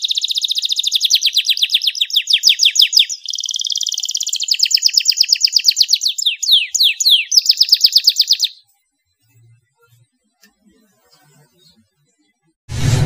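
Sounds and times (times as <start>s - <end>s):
canary singing: 0.0s - 8.7s.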